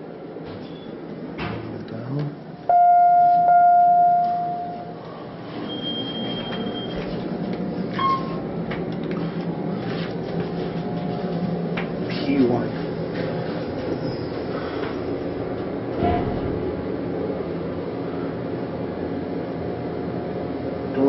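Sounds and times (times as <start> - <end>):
elevator hum: 0.0 - 21.0
high beep: 2.7 - 4.9, 5.7 - 7.0
elevator electronic chime: 2.7 - 5.0, 5.6 - 7.1, 7.9 - 8.4.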